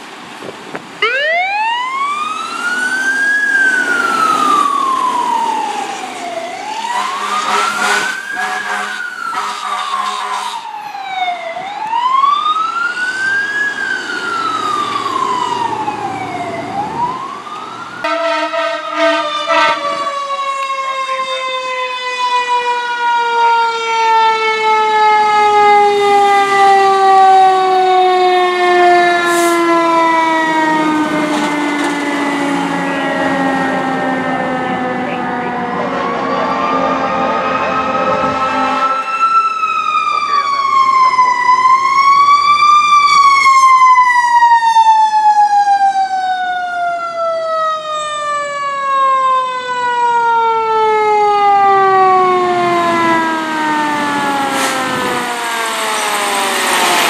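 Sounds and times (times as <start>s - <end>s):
fire engine siren wailing: 1.0s - 57.0s
siren winding down: 1.0s - 57.0s
horn blasts: 6.8s - 10.7s, 18.0s - 20.2s, 34.9s - 39.2s.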